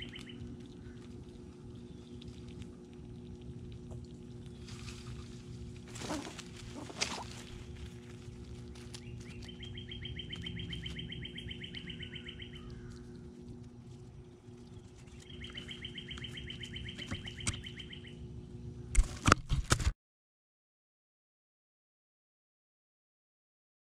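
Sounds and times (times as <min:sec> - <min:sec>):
songbird trilling: 0:00.0 - 0:00.9, 0:09.0 - 0:13.2, 0:14.7 - 0:18.2
low steady hum: 0:00.0 - 0:19.9.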